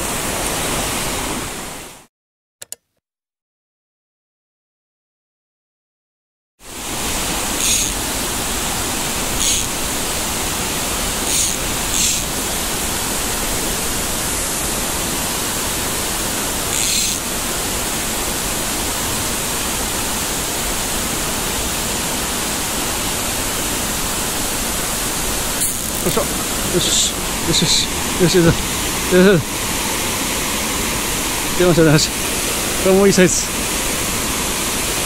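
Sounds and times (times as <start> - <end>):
stream water rushing: 0.0 - 2.1, 6.6 - 35.0.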